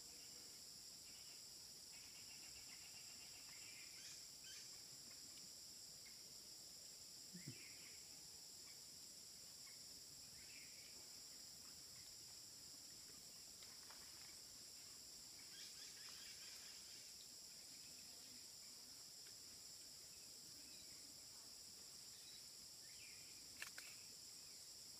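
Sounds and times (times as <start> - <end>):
high-pitched insect drone: 0.0 - 4.8, 15.2 - 18.8
faint chirps: 0.0 - 6.3, 7.2 - 24.9.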